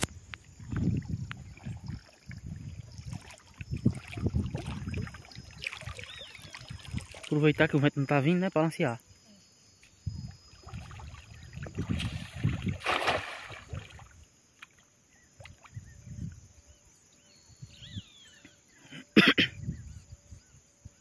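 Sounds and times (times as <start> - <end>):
water splashing and sloshing: 0.0 - 7.8, 9.8 - 15.9.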